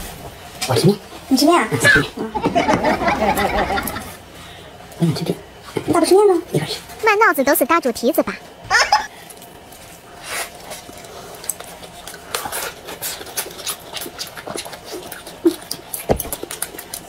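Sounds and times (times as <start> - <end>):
wet chewing and lip smacks: 10.7 - 17.0.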